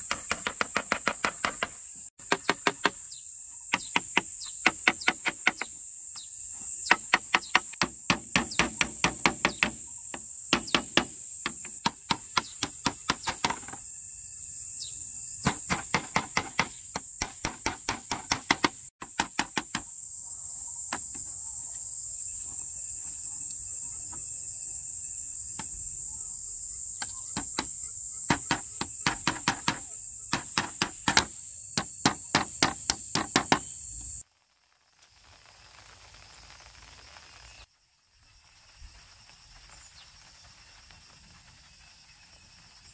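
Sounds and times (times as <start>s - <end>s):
forest insects droning: 0.0s - 42.9s
tool chopping strikes: 6.9s - 9.8s, 10.5s - 13.8s, 15.4s - 19.8s, 28.3s - 33.7s.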